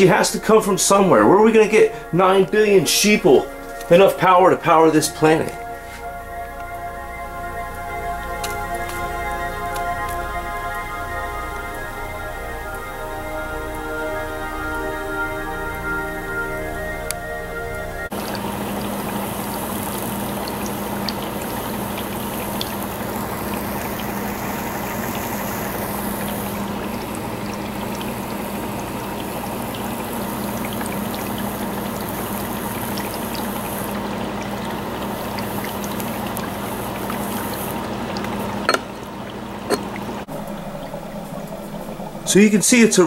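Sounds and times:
low hum: 0:00.0 - 0:43.0
trickling bubbling: 0:00.0 - 0:43.0
torch flame hissing: 0:18.2 - 0:34.0.

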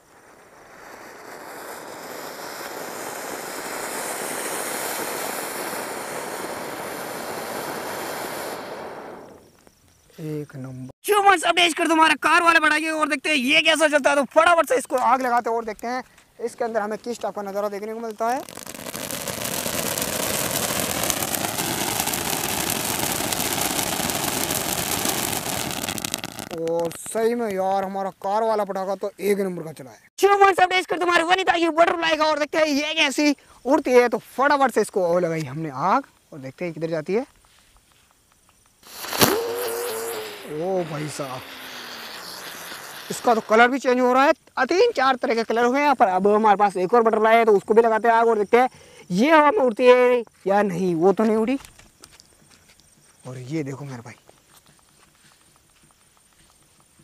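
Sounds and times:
firework fountain hissing: 0:00.0 - 0:09.6, 0:17.2 - 0:27.6, 0:38.8 - 0:44.3.

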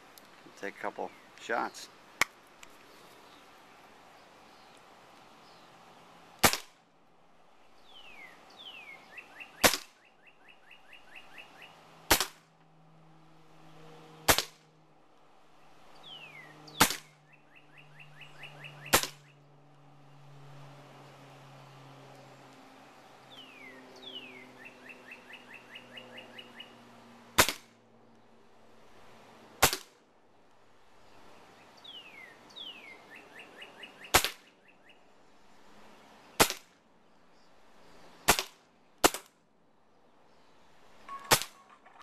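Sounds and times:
air pistol shots: 0:06.4 - 0:06.8, 0:09.6 - 0:10.0, 0:12.1 - 0:12.4, 0:14.3 - 0:14.6, 0:16.8 - 0:17.2, 0:18.9 - 0:19.2, 0:27.4 - 0:27.7, 0:29.6 - 0:30.0, 0:34.1 - 0:34.4, 0:36.4 - 0:36.7, 0:38.3 - 0:39.3, 0:41.1 - 0:41.8.

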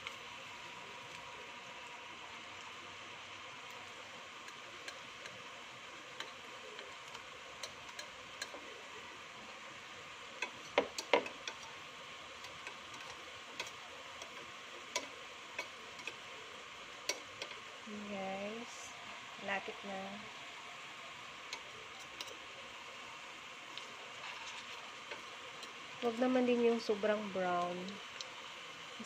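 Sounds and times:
frying in hot oil sizzle: 0:00.0 - 0:29.0
metal tongs clicking against pan: 0:04.4 - 0:05.4, 0:06.1 - 0:08.6, 0:10.4 - 0:11.7, 0:12.4 - 0:16.3, 0:17.0 - 0:17.6, 0:21.5 - 0:22.4.

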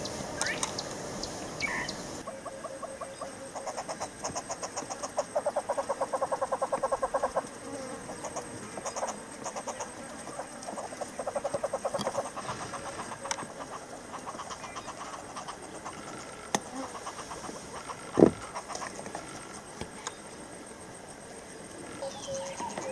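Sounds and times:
hornbills rapid clucking calls: 0:01.6 - 0:07.4, 0:08.1 - 0:19.0.

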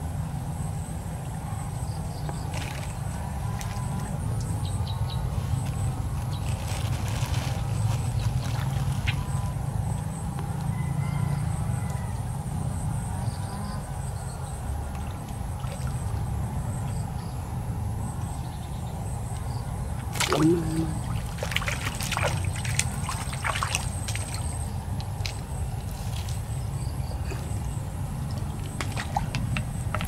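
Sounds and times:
water sloshing and splashing: 0:05.7 - 0:09.5, 0:14.8 - 0:17.0, 0:20.0 - 0:30.0.

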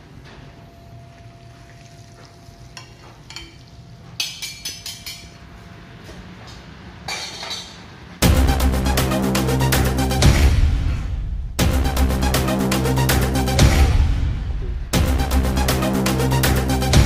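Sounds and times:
steady low hum: 0:07.9 - 0:17.0.

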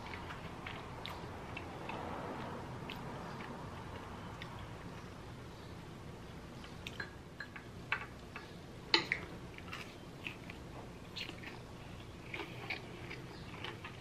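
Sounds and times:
chewing with wet smacks: 0:00.0 - 0:05.1, 0:09.0 - 0:14.0.

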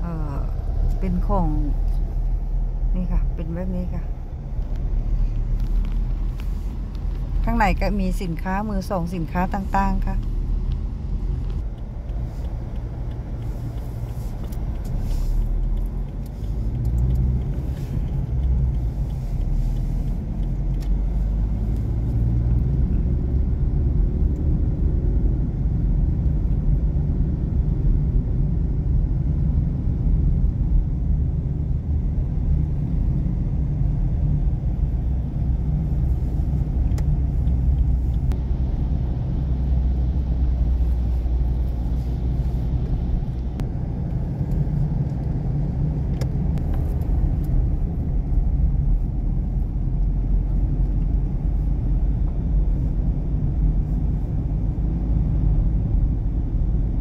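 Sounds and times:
car interior road rumble: 0:00.0 - 0:57.0.

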